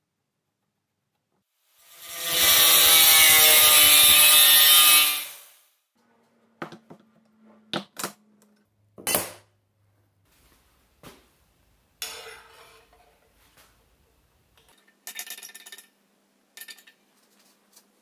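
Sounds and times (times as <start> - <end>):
angle grinder cutting metal: 1.8 - 5.6.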